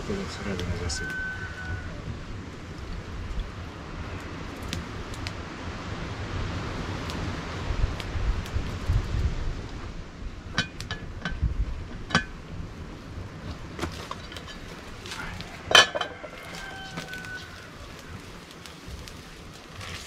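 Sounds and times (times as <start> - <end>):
metal pot lid clinking: 10.5 - 12.4, 15.7 - 16.4
pot lid clanking and ringing: 10.6 - 11.4, 12.0 - 12.4, 15.7 - 16.4.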